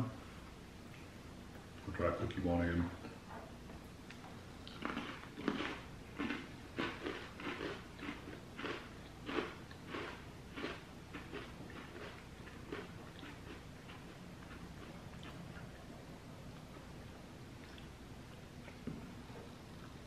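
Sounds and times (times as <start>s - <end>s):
crunchy cookie chewing: 4.1s - 19.0s.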